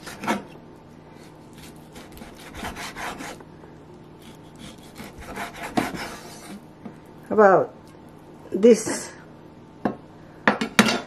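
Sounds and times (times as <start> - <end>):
knife slicing meat on board: 1.5 - 3.4, 4.2 - 6.6.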